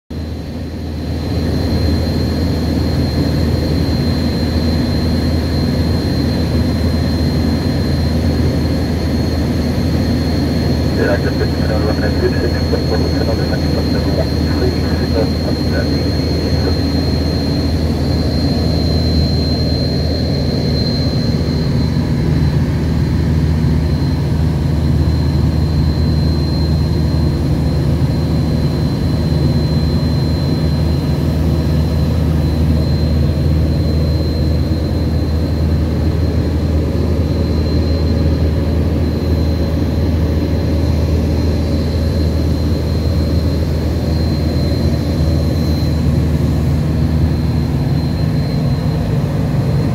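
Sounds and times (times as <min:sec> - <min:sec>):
propeller aircraft engine drone: 0:00.1 - 0:49.9
thin high whine: 0:10.2 - 0:49.9.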